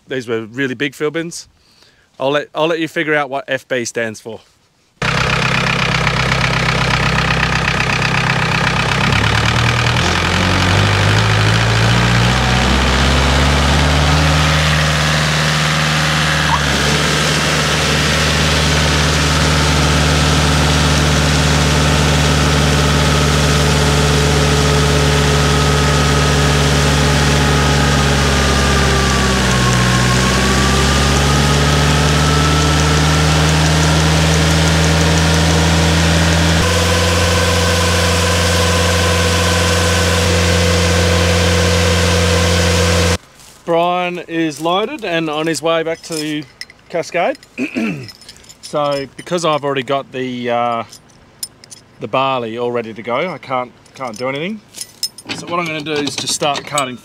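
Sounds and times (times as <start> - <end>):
engine running at steady revs: 5.0 - 43.2.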